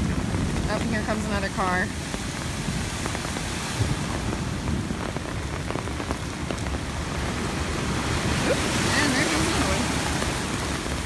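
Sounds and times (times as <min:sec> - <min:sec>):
close raindrop taps: 0:00.0 - 0:07.4
heavy rain falling: 0:00.0 - 0:11.0.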